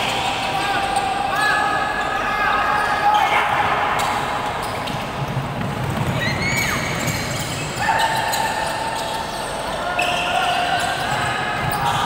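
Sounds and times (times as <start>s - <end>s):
shoe squeaks: 6.1s - 12.0s.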